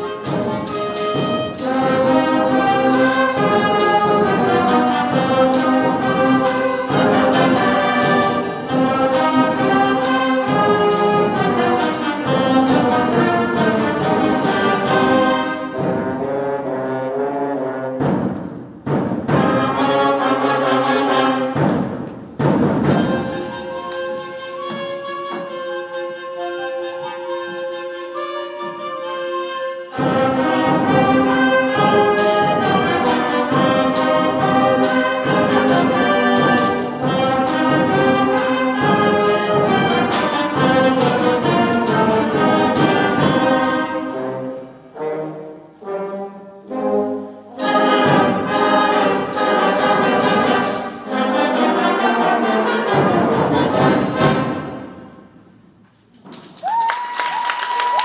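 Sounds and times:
drum hits: 18.0 - 19.8, 21.5 - 23.7, 53.0 - 55.4.

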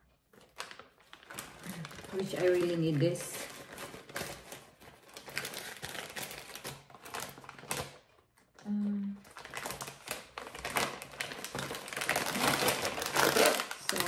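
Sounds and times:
plastic bag crinkling: 0.0 - 14.0
person humming: 8.6 - 9.2.

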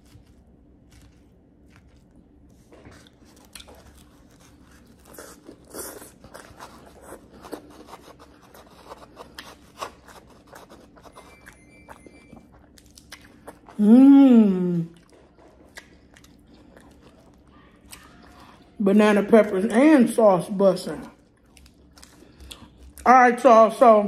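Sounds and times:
chewing and crunching food: 0.0 - 14.0, 14.6 - 19.8, 20.4 - 23.5.

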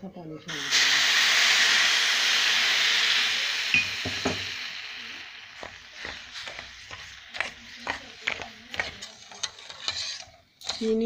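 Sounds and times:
water sizzling in hot pan: 0.5 - 10.2
spoon clinking and scraping pan: 5.6 - 11.0.

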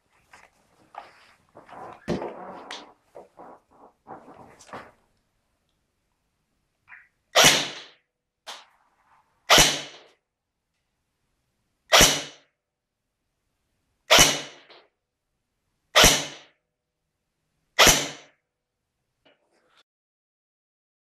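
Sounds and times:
airsoft gun shots: 7.4 - 8.0, 9.5 - 10.0, 11.9 - 12.4, 14.1 - 14.7, 16.0 - 16.5, 17.8 - 18.3.

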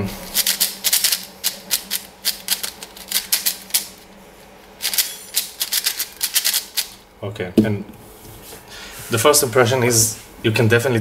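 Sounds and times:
plastic puzzle cube clacking: 0.4 - 3.9, 4.8 - 7.0.

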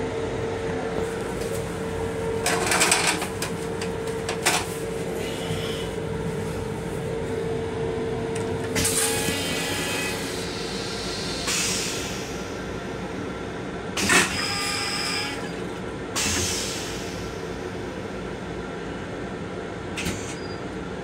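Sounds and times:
railcar low rumble: 0.0 - 21.0.

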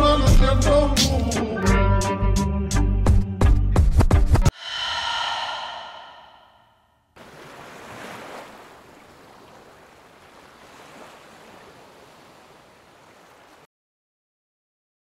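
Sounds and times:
music: 0.0 - 4.5
waves breaking on shore: 7.2 - 13.7.

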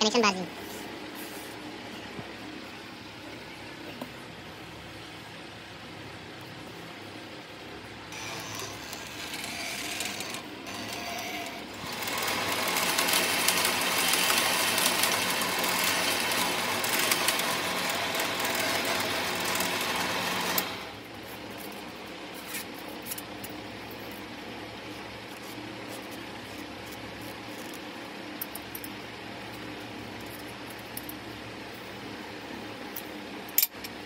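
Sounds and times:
coil-winding machine whirring: 8.1 - 22.1.

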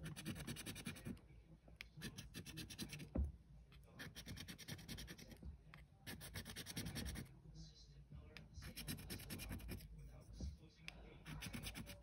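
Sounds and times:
scratchcard coating rasping: 0.0 - 1.2, 2.0 - 3.2, 3.9 - 5.4, 6.0 - 7.3, 8.6 - 10.0, 11.2 - 12.0.

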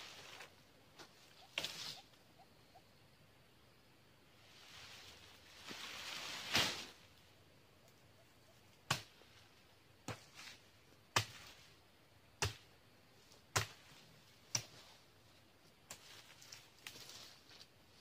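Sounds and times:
blade chopping palm stalks: 8.8 - 9.4, 10.0 - 11.6, 12.4 - 12.7, 13.5 - 14.9.

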